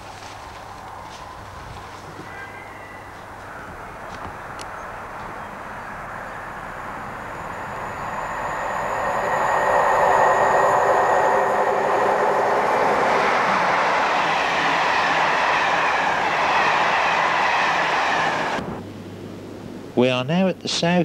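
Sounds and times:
rush of coaches passing: 0.0s - 18.8s
train passing at speed: 0.0s - 18.8s
locomotive whine: 0.0s - 19.5s.

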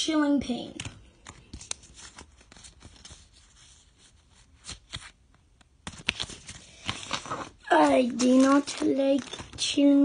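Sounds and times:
trading cards clicking and rustling: 0.7s - 3.2s, 4.6s - 10.0s.

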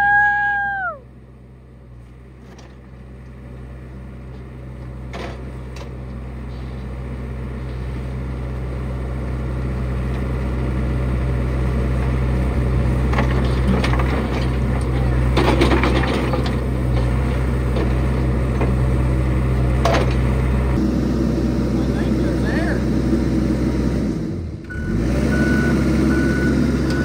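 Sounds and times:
excavator diesel engine humming: 0.0s - 27.0s.

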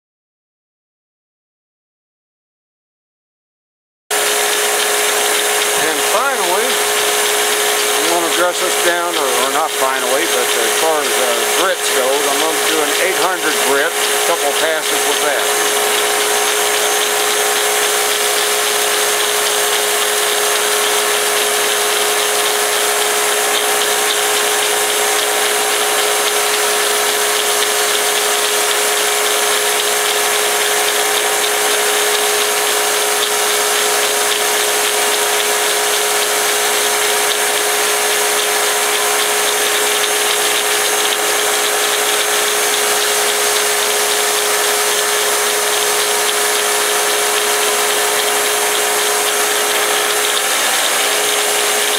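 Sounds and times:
belt grinder humming: 4.1s - 51.9s.

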